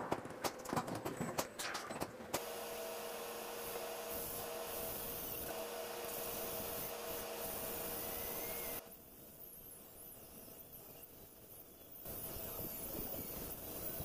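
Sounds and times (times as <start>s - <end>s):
drill hole saw cutting panel: 2.4s - 8.8s.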